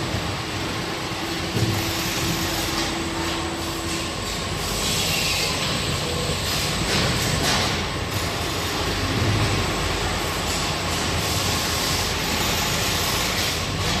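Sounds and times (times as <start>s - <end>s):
belt conveyor running: 0.0s - 14.0s
bag sewing machine: 1.5s - 14.0s.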